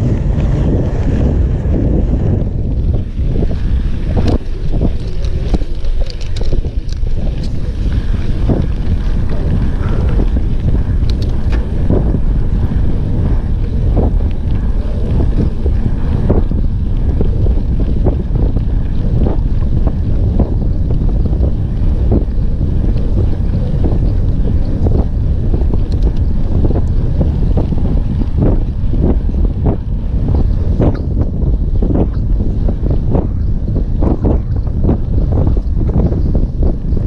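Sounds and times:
wind buffeting microphone: 0.0s - 37.0s
bike clicks and knocks: 2.8s - 12.2s.

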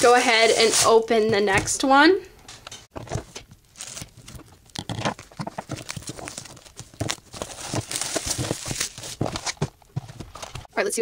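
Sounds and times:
plastic shrink-wrap crinkling: 3.6s - 10.6s.

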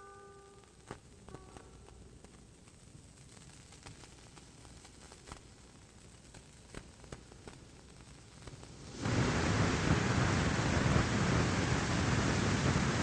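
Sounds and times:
steady rushing noise: 8.9s - 13.0s.

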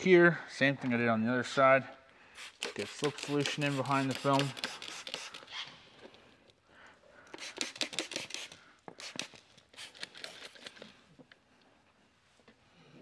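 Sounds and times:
scratchy hissing and rustling: 2.4s - 5.7s, 7.4s - 10.8s.

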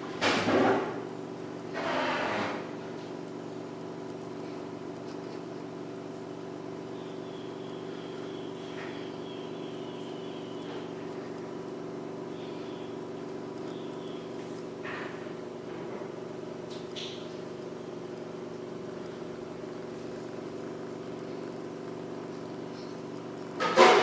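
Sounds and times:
cat purring: 18.8s - 23.5s.

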